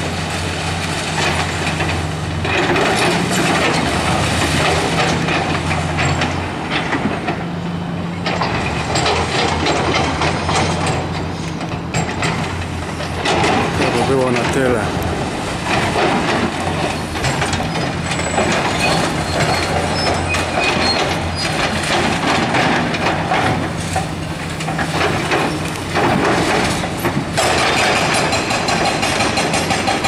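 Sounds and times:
diesel engines running: 0.0 - 30.0
hydraulic breaker hammering: 11.9 - 30.0
concrete rubble crunching: 12.0 - 30.0.

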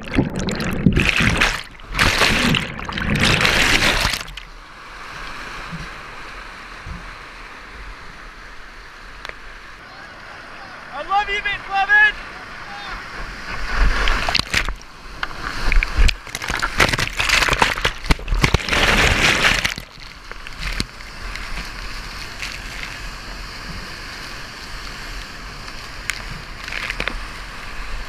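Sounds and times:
loud splashing: 0.0 - 4.5, 13.6 - 14.8, 15.5 - 20.8
whitewater rushing: 0.4 - 4.5, 9.8 - 28.0.

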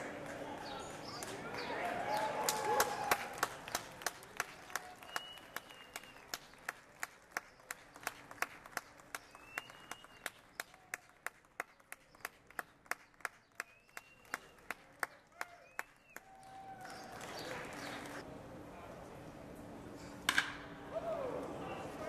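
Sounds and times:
spectators clapping: 0.0 - 18.2
short high whistles: 5.0 - 6.2.

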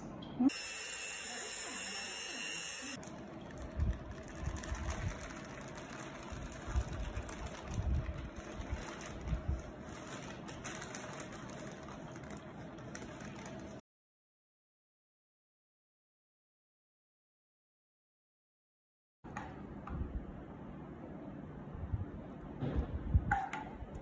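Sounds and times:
steady mechanical hum: 0.0 - 13.8, 19.3 - 24.0
electric hand mixer whirring: 0.5 - 3.0
paper crinkling: 3.0 - 13.8.

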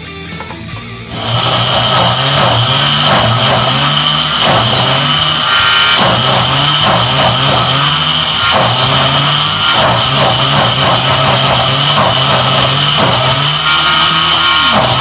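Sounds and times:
blender motor running: 1.1 - 15.0.

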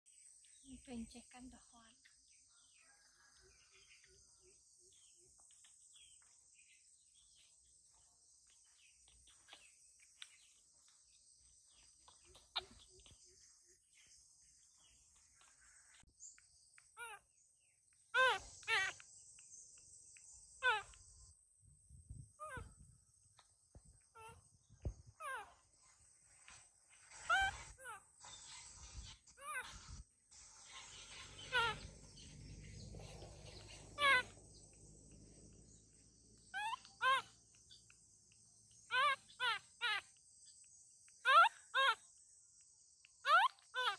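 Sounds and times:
insects humming: 0.1 - 43.9
baby monkey squealing: 12.0 - 13.2, 17.0 - 17.3, 18.1 - 19.0, 20.6 - 21.0, 22.4 - 22.7, 24.1 - 24.4, 25.2 - 25.6, 27.1 - 30.0, 30.6 - 34.4, 36.4 - 37.9, 38.8 - 40.2, 41.2 - 42.0, 43.2 - 43.9.

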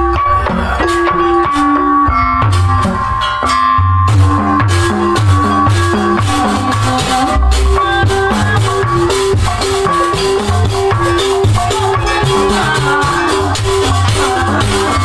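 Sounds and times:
kendang drum patterns: 0.0 - 15.0
metallophone repeating notes: 0.0 - 15.0.

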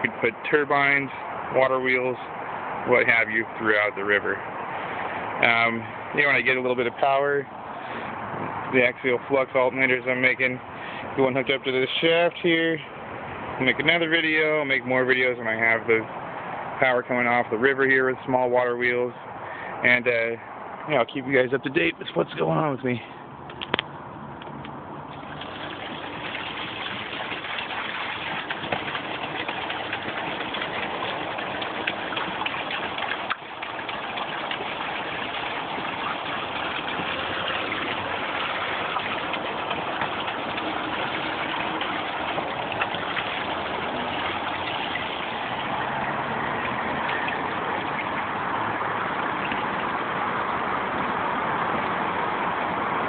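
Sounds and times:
water running through pipe channel: 25.1 - 51.7.

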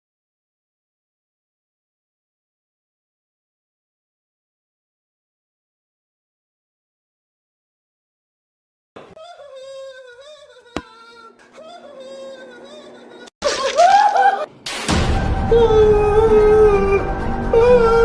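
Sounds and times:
music: 14.5 - 18.0.

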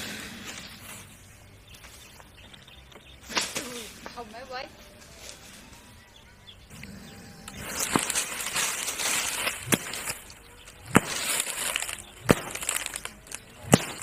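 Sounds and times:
grass and leaves rustling: 0.0 - 14.0
stick whacking into brush: 7.8 - 14.0.

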